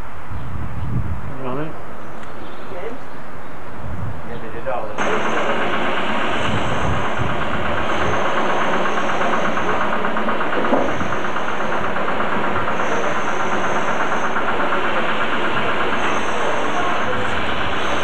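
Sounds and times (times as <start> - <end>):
engine running: 5.0 - 18.0.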